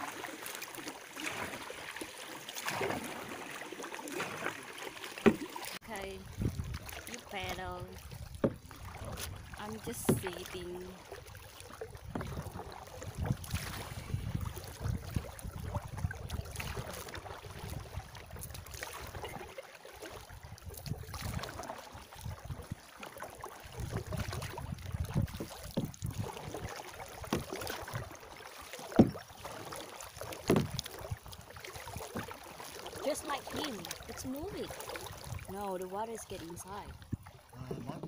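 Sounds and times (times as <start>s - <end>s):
paddle splashing in water: 0.0s - 38.0s
wind buffeting microphone: 6.0s - 6.9s, 12.0s - 16.9s.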